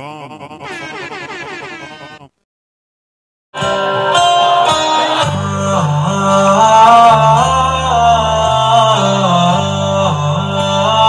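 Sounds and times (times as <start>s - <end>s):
warbling pitched tone: 0.7s - 2.2s.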